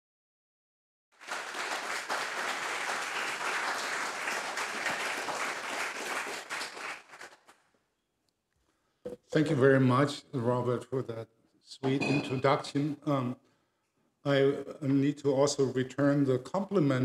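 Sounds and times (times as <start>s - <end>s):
audience applause: 1.2s - 7.6s.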